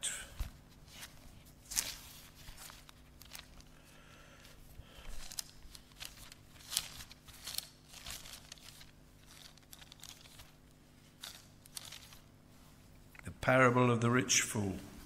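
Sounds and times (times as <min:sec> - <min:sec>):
paper pages rustling: 0:00.4 - 0:03.8, 0:04.4 - 0:12.9.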